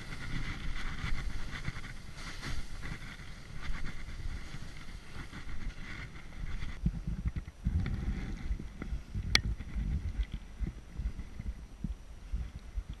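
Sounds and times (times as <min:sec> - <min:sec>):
skis hissing on snow: 0:00.0 - 0:06.8
wind buffeting microphone: 0:00.0 - 0:13.0.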